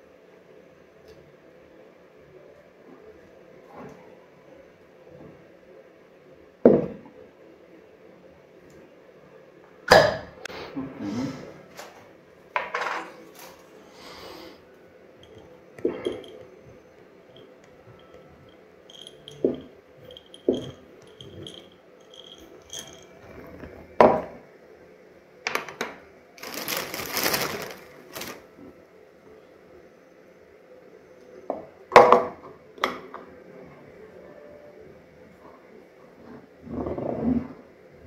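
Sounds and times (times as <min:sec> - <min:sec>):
jars and utensils clicking: 0:15.2 - 0:16.5, 0:18.9 - 0:23.6.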